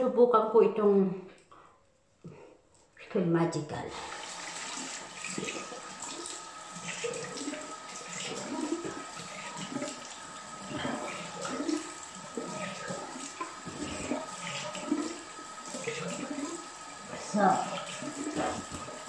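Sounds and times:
splashing water on face: 3.9 - 19.0
water running from sink tap: 3.9 - 19.0.

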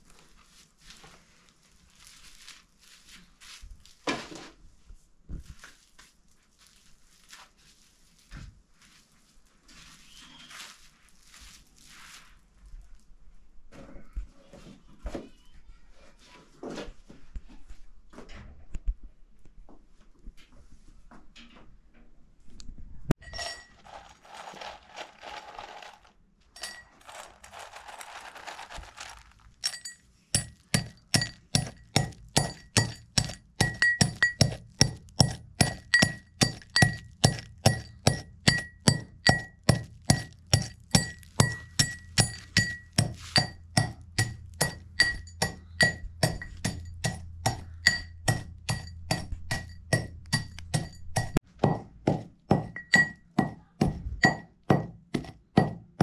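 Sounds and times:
soft rustling: 0.0 - 13.2, 23.7 - 31.9
utensil clinking against bowl: 23.2 - 26.0, 26.6 - 51.4, 52.5 - 53.5.

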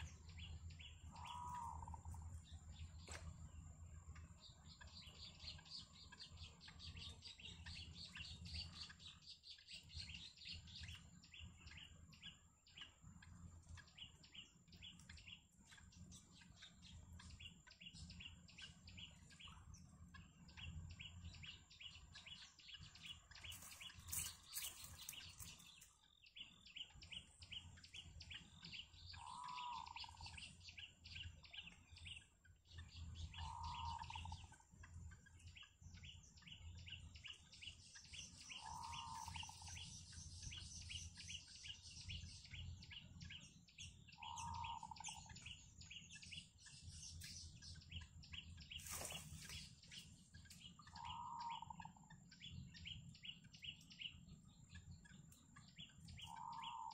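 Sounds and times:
lower bird call: 0.0 - 3.4, 29.1 - 30.4, 33.3 - 34.6, 38.4 - 39.9, 44.1 - 46.2, 50.7 - 52.6, 56.1 - 56.9.

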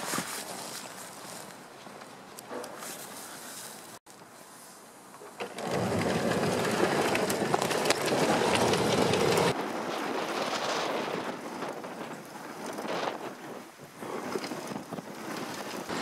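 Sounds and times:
tracked vehicle clattering over snow: 5.2 - 16.0.

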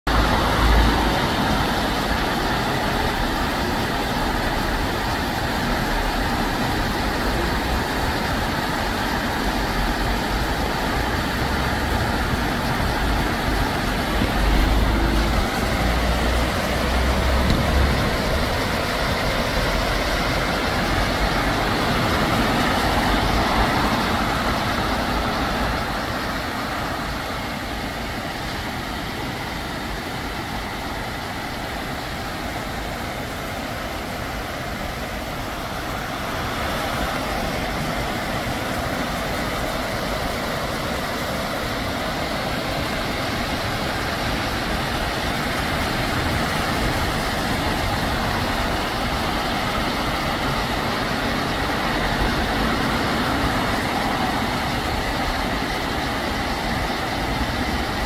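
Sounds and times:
rain falling: 0.1 - 58.0
stream water rushing over weir: 0.1 - 58.0.

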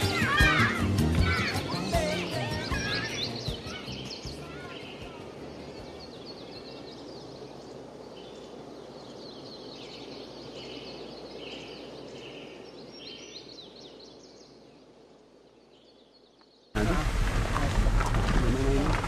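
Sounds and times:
birds chirping: 0.0 - 19.0
outdoor hiss: 0.0 - 19.0.

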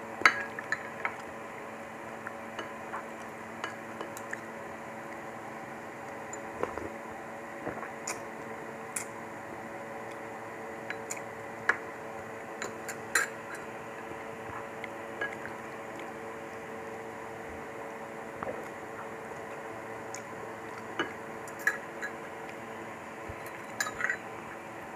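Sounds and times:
steady background hum: 0.0 - 24.9.

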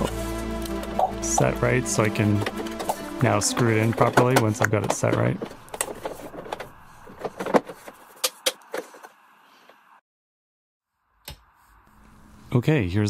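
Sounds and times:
hands clicking and knocking on case: 2.4 - 8.8.

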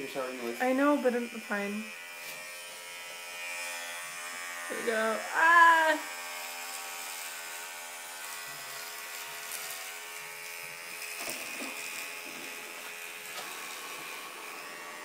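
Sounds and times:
electric hair clippers running: 0.0 - 15.0.

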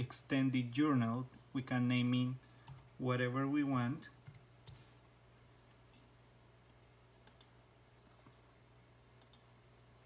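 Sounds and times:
faint steady hum: 0.0 - 10.0
computer mouse clicks: 1.9 - 2.9, 7.2 - 8.4, 9.2 - 9.5.

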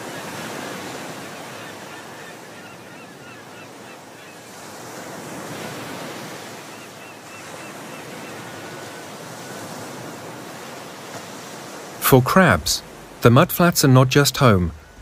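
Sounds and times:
rushing water: 0.0 - 2.5, 4.4 - 15.0
wind: 0.0 - 15.0.

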